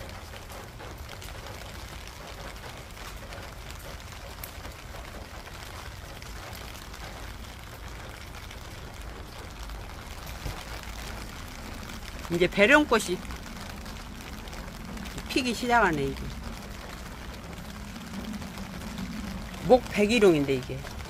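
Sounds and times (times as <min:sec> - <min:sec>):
rain on plants and pots: 0:00.0 - 0:21.0
low rumble: 0:09.0 - 0:21.0.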